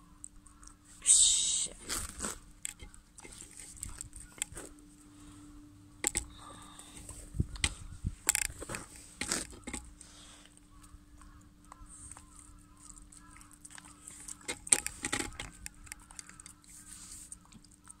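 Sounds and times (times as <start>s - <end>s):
dog chewing wet food: 1.8s - 18.0s.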